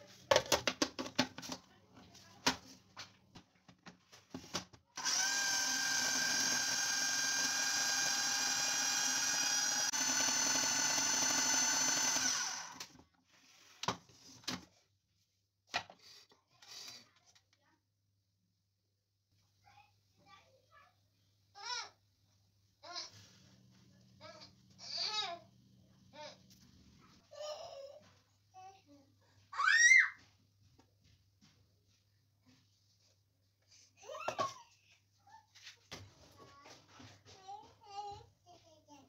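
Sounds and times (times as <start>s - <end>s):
food processor motor whining: 5.0s - 13.0s.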